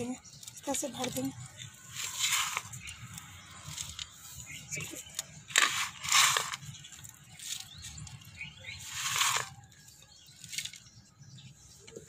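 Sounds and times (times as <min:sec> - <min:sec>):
potting soil pouring into a pot: 0:01.9 - 0:02.8, 0:05.5 - 0:06.7, 0:08.8 - 0:09.7.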